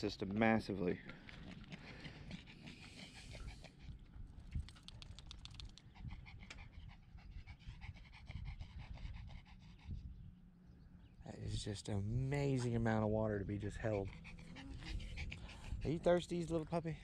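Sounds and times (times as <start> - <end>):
small dog panting: 1.2 - 10.3, 13.5 - 16.7.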